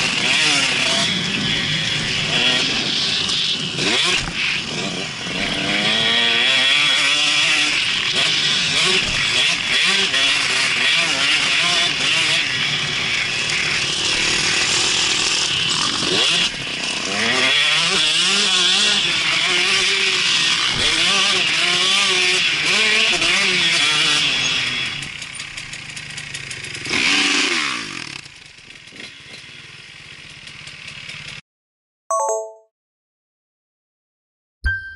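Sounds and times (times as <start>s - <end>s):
motocross bike engine revving: 0.0s - 29.0s
motorbike engine idling: 25.0s - 26.9s, 28.3s - 31.4s.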